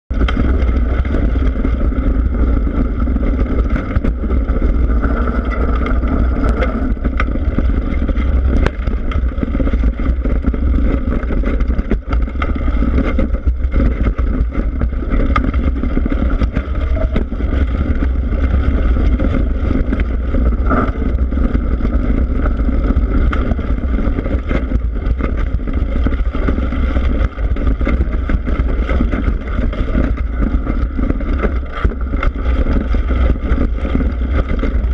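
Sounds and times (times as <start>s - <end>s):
tyre rolling on dirt trail: 0.1s - 34.9s
wind buffeting microphone: 0.1s - 34.9s
bike clicks and knocks: 0.2s - 34.9s.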